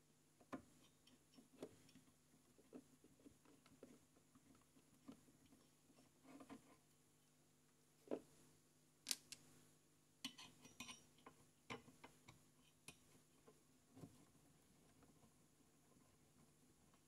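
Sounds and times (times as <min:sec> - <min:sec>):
light clicks and taps of tools: 0:00.4 - 0:02.9, 0:09.1 - 0:09.4, 0:10.2 - 0:14.2.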